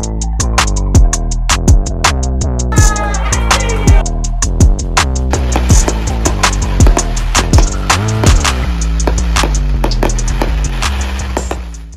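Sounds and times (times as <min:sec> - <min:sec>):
music with steady beat: 0:00.0 - 0:11.9
sustained bass notes: 0:00.0 - 0:11.9
deep pitch-sliding kick drum: 0:03.9 - 0:11.9.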